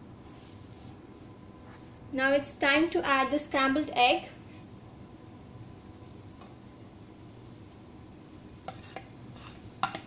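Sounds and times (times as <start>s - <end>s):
food sizzling in a wok: 2.3s - 10.0s.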